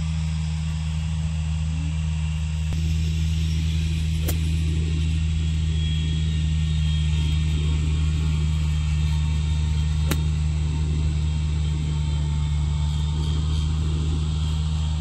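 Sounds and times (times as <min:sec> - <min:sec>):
steady low motor hum: 0:00.0 - 0:15.0
golf club hitting turf: 0:04.2 - 0:04.6, 0:10.0 - 0:10.3.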